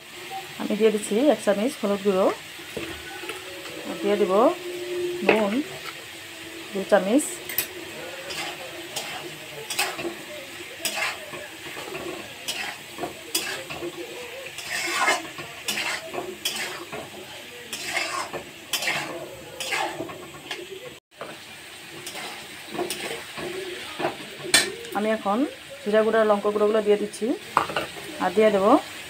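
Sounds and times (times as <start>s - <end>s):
oil sizzling: 0.0s - 29.0s
metal spatula scraping pan: 2.7s - 20.9s, 22.0s - 24.7s.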